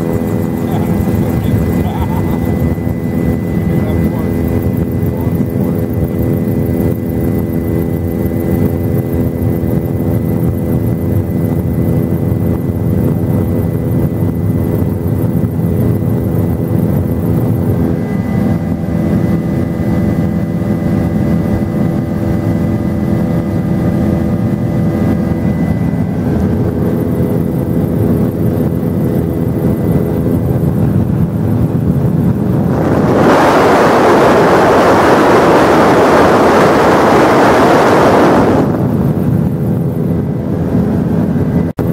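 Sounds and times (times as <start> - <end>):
helicopter engine and rotor drone: 0.0 - 41.9
rushing wind noise: 0.0 - 41.9.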